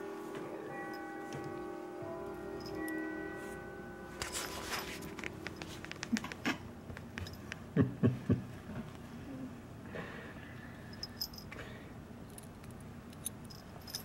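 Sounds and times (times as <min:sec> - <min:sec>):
light rustling on a bed: 0:04.2 - 0:06.4
collar jingling: 0:10.9 - 0:11.6, 0:12.3 - 0:14.0.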